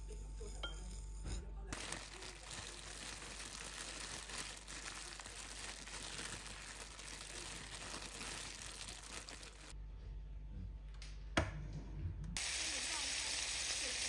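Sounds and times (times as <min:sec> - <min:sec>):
plastic bag crinkling: 0:01.8 - 0:09.8.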